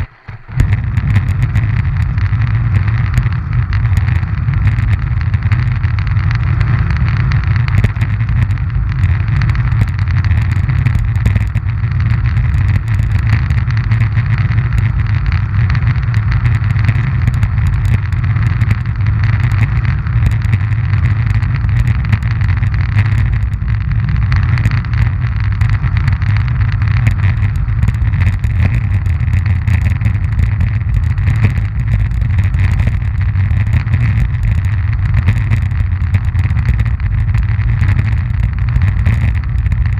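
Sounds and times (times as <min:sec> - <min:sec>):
ski wheels rolling on asphalt: 0:00.0 - 0:39.9
small clicks: 0:00.0 - 0:39.9.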